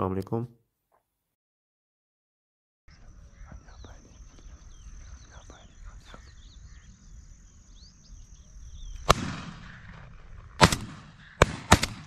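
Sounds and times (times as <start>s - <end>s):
shotgun shots: 9.0s - 12.0s.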